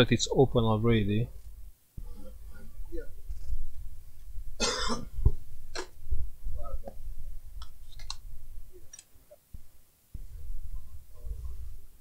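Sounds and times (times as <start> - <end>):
man clearing throat: 4.6 - 5.1
man coughing: 4.6 - 5.1.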